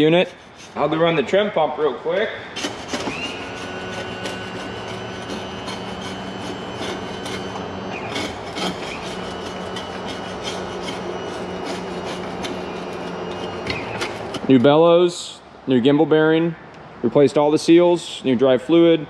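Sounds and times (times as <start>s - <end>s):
hydraulic pump humming: 0.0s - 14.8s
rough rubbing noise: 0.0s - 14.8s.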